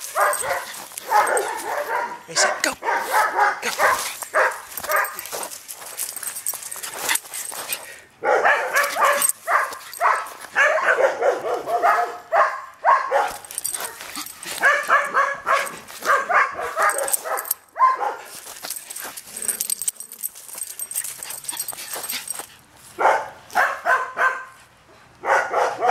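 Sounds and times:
dog barking in play: 0:00.0 - 0:05.3, 0:08.2 - 0:18.3, 0:23.0 - 0:24.6, 0:25.2 - 0:25.9.

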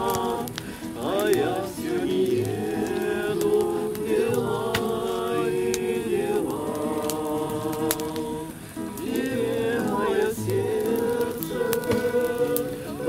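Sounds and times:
acoustic guitar strumming: 0:00.0 - 0:13.0
group singing a hymn: 0:00.0 - 0:13.0.

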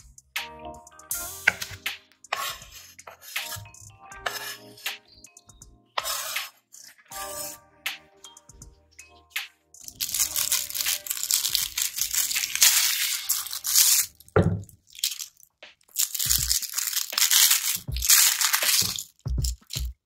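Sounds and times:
plastic film wrapper crinkling: 0:09.9 - 0:19.9.

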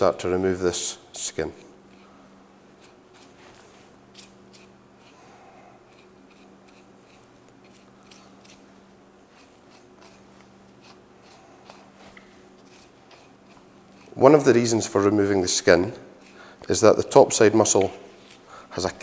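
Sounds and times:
steady low hum: 0:00.0 - 0:19.0
knife cutting meat: 0:01.5 - 0:08.7, 0:09.3 - 0:14.2, 0:16.0 - 0:16.4.

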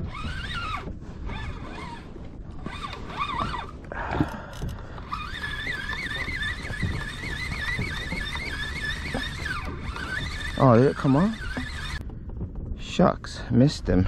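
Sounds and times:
fishing reel whirring: 0:00.0 - 0:12.0
low wind: 0:00.0 - 0:14.0
water rumble: 0:00.0 - 0:14.0.

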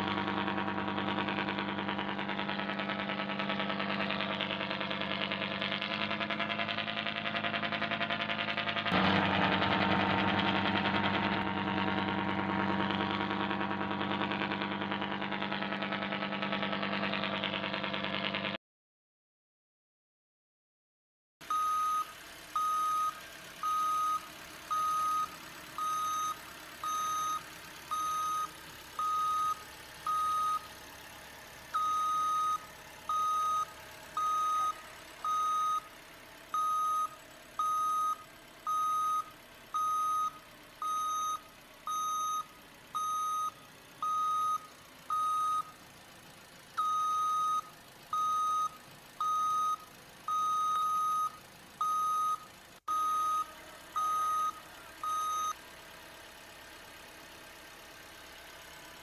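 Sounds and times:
reversing alarm beeping: 0:21.5 - 0:30.7, 0:31.8 - 0:35.9, 0:36.6 - 0:45.7, 0:46.8 - 0:55.6.

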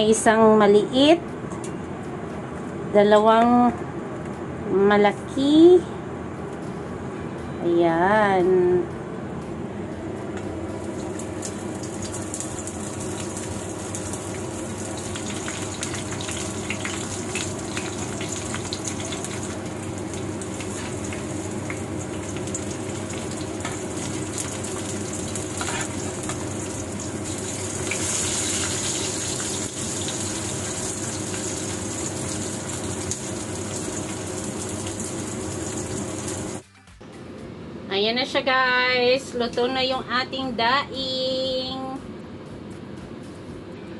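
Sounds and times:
fish sizzling in hot oil: 0:11.0 - 0:36.6.

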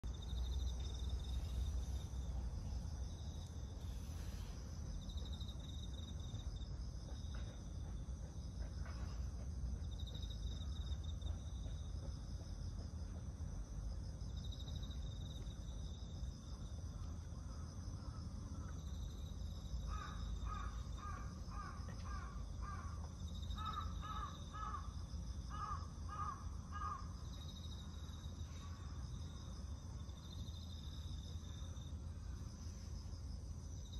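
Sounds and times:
insects trilling: 0:00.0 - 0:12.8, 0:14.0 - 0:33.9.

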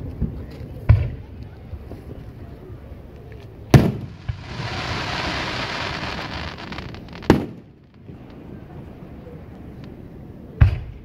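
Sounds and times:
fireworks bangs: 0:03.7 - 0:08.4
fireworks crackles: 0:03.7 - 0:08.4
fireworks hiss: 0:03.8 - 0:07.7.

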